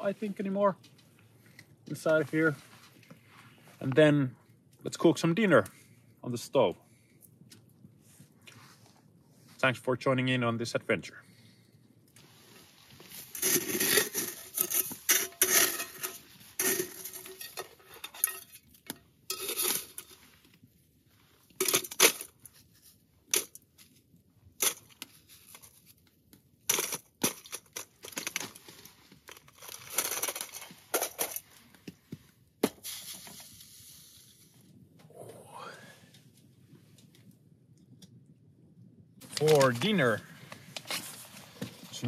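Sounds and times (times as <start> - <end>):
metal pan scraping snow: 12.5 - 18.7, 19.3 - 20.4, 32.8 - 34.5.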